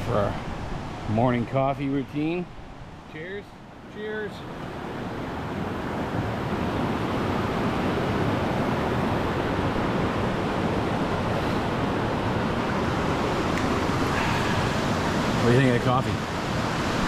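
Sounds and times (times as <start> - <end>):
waterfall rushing: 3.6 - 17.0.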